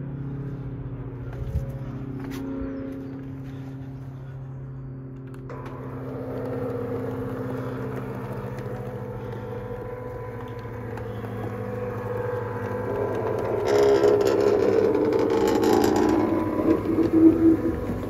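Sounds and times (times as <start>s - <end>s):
electric motor humming: 0.0s - 18.0s
motor whirring: 5.2s - 18.0s.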